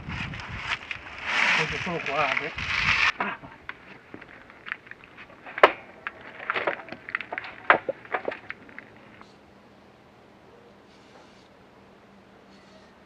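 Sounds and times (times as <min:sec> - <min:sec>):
wood knocking and scraping: 0:01.4 - 0:09.2.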